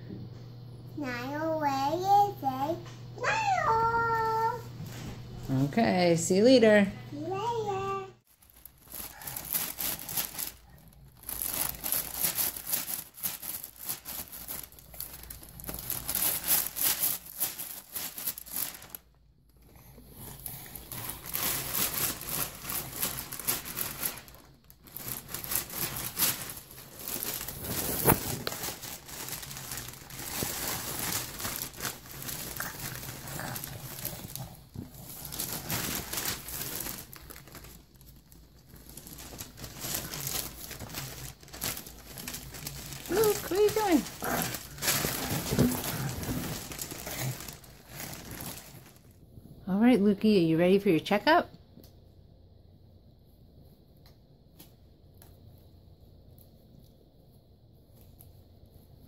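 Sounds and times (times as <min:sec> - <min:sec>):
sheeting crinkling and rustling: 0:07.8 - 0:19.2, 0:20.2 - 0:49.2.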